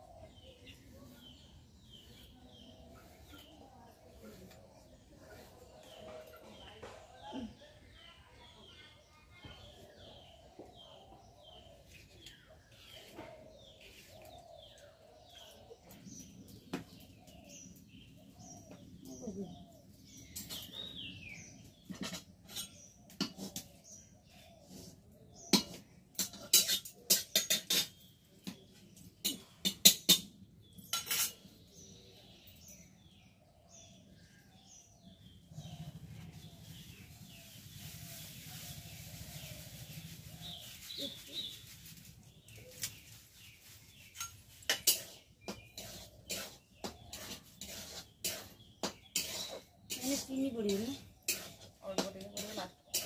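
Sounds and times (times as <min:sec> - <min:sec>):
birds chirping: 0:00.0 - 0:53.0
metal spatula scraping iron pan: 0:25.6 - 0:28.1, 0:30.8 - 0:31.4, 0:44.2 - 0:53.0.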